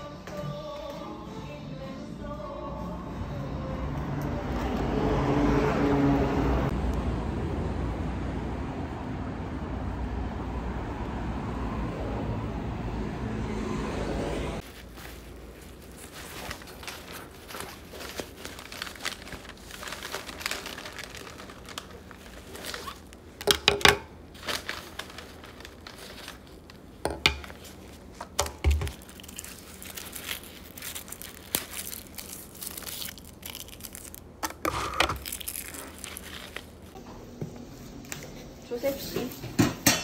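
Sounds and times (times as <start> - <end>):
fabric bag rustling: 14.6 - 23.4, 24.2 - 37.0.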